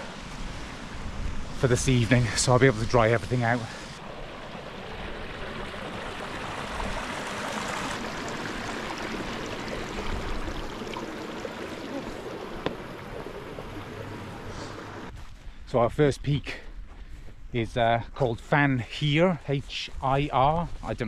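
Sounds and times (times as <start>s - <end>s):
stream running over rocks: 0.0s - 15.1s.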